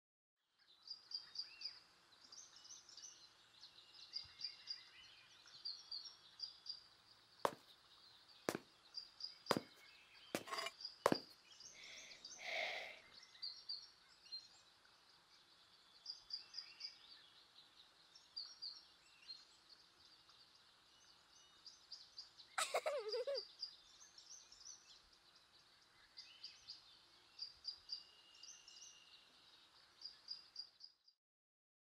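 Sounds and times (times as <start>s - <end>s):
small birds chirping: 0.5s - 31.1s
sharp knocks: 9.5s - 9.8s, 10.4s - 11.2s.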